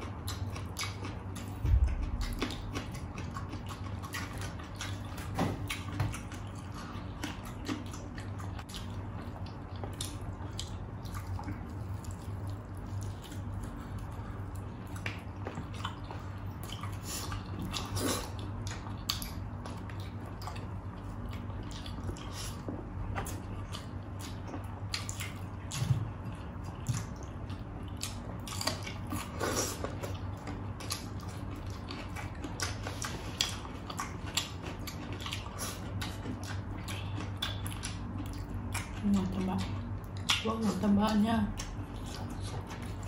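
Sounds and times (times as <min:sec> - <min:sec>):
low hum: 0:00.0 - 0:43.0
wet chewing and lip smacking: 0:00.0 - 0:43.0
low thump: 0:01.6 - 0:02.5.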